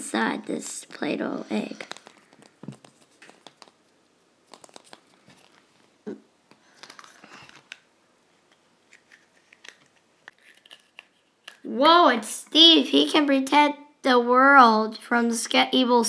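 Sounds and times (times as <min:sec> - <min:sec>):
plastic egg clicking and crinkling: 0:01.7 - 0:11.7.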